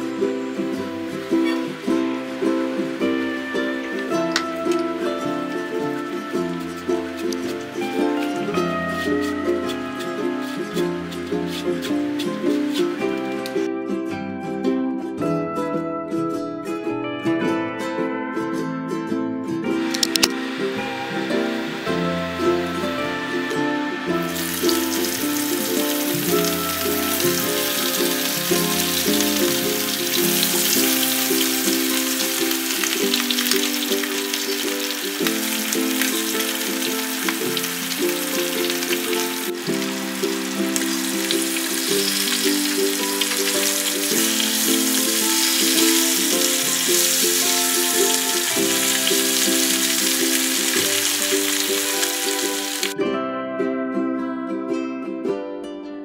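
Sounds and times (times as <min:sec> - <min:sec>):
background music: 0:00.0 - 0:56.0
fish sizzling in oil: 0:19.8 - 0:53.0.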